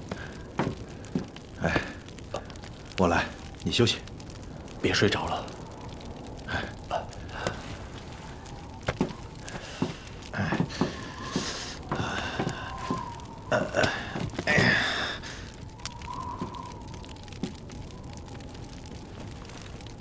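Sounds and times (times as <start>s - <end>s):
campfire crackling and popping: 0.0s - 20.0s
man's wordless vocal sounds: 10.3s - 15.2s.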